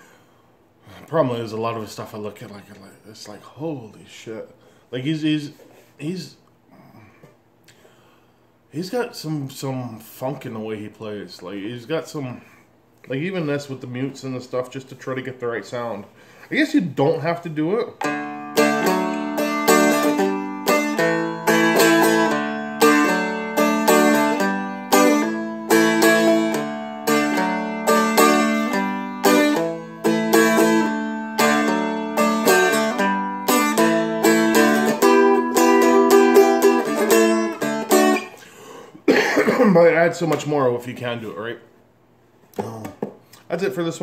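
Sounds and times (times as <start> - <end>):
fretted dulcimer strummed: 18.0 - 38.4.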